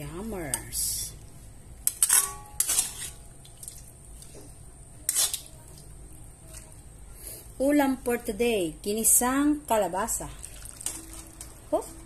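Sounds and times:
metal ladle scraping wok: 1.9s - 3.2s.

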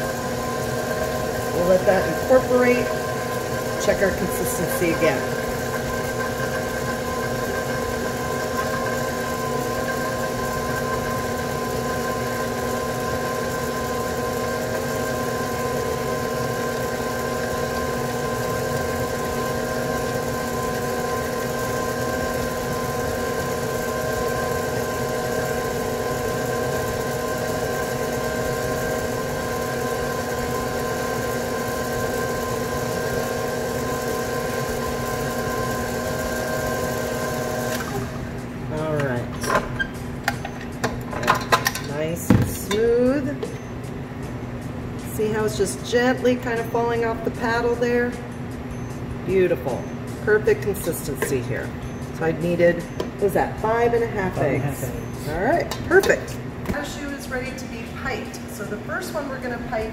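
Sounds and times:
stand mixer motor humming: 0.0s - 39.2s.

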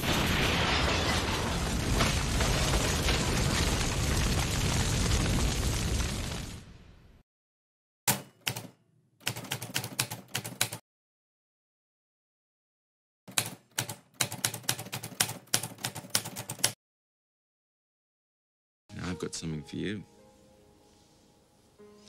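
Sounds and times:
typewriter keys clacking: 8.5s - 10.8s, 13.3s - 16.8s.

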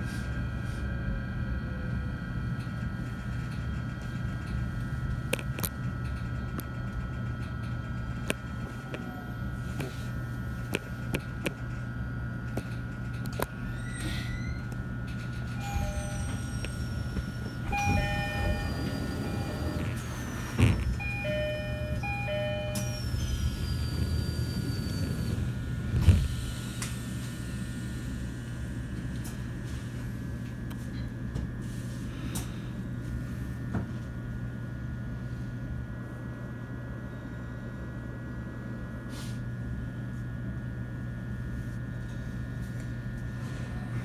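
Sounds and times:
train equipment and air conditioning hum: 0.0s - 44.0s
two-tone door chime: 15.6s - 16.5s, 17.7s - 19.8s, 21.0s - 23.2s.

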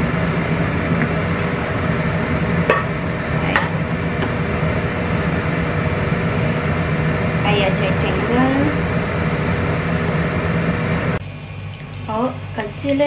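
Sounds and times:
low machinery hum: 0.0s - 13.0s.

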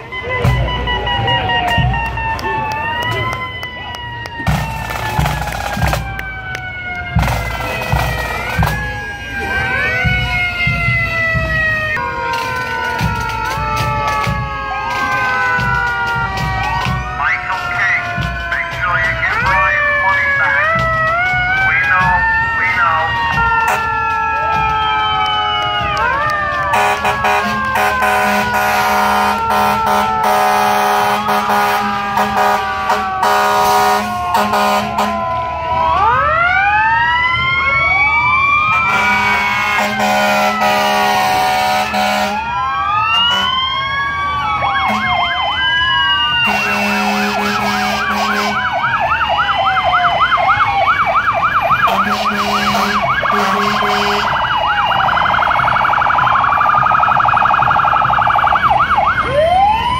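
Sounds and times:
emergency sirens wailing: 0.0s - 59.9s
siren fast yelp: 0.0s - 59.9s
long horn blasts: 26.7s - 35.3s, 38.7s - 42.5s, 44.9s - 45.2s, 46.4s - 48.7s, 51.9s - 54.4s.

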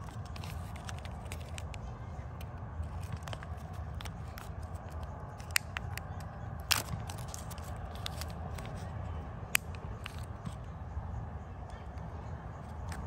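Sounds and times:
foil and plastic clicks: 0.0s - 1.8s, 2.4s - 8.9s, 9.5s - 10.6s
foil lid peeling: 0.0s - 1.8s, 2.8s - 8.8s
low background rumble: 0.0s - 13.0s.

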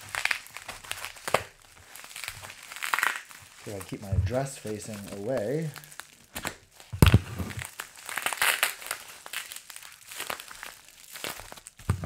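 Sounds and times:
bubble wrap crinkling: 0.0s - 12.0s
dull thump: 4.0s - 4.5s, 7.0s - 7.6s.

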